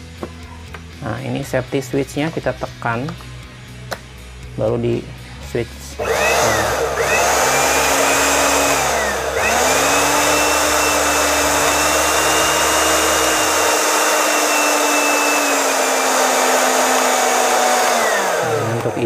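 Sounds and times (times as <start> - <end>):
blender motor whirring: 6.0 - 19.0.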